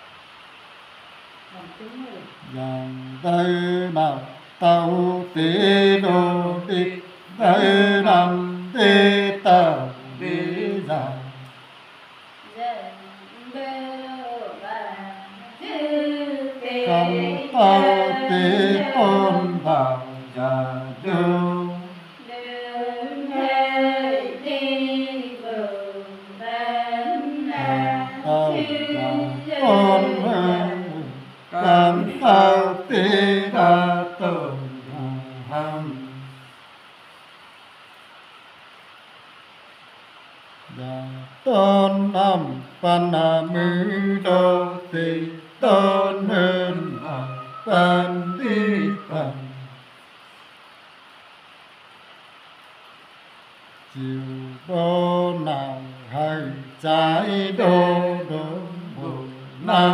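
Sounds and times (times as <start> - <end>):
men singing unaccompanied: 2.3 - 11.6, 14.9 - 36.4, 40.7 - 49.8, 53.9 - 59.9.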